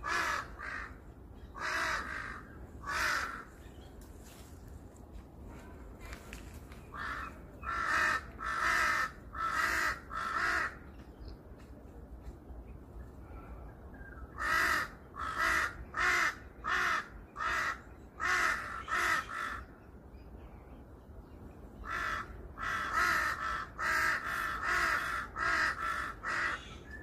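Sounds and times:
crow cawing: 0:00.0 - 0:01.0, 0:01.6 - 0:03.6, 0:06.9 - 0:10.8, 0:14.4 - 0:19.7, 0:21.8 - 0:26.7.

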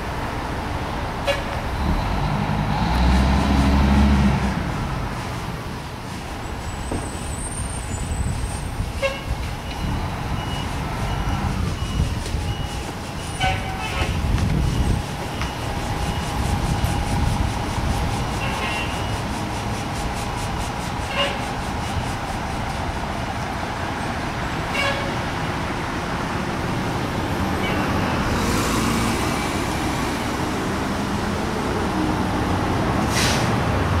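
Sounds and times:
fire engine diesel engine: 0:00.0 - 0:34.0
back-up alarm beeping: 0:14.6 - 0:17.1
horn toot: 0:21.1 - 0:21.5
air brake hiss: 0:33.1 - 0:33.6.

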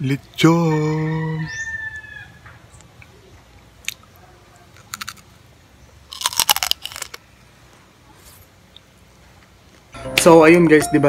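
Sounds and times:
teeth crunching crispy skin: 0:04.7 - 0:05.4, 0:06.1 - 0:07.2.

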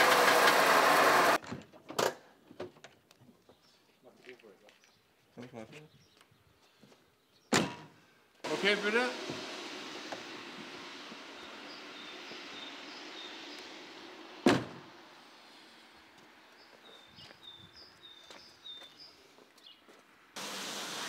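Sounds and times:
car door slamming: 0:14.4 - 0:14.8.

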